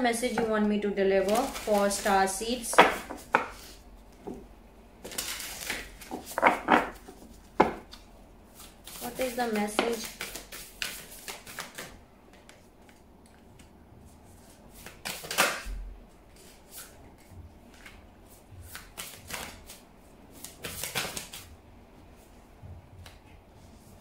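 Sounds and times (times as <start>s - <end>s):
cards being shuffled: 1.2s - 4.4s, 5.0s - 13.7s, 14.4s - 15.6s, 16.3s - 21.5s
cards clicking and tapping: 5.0s - 8.0s, 8.6s - 13.7s.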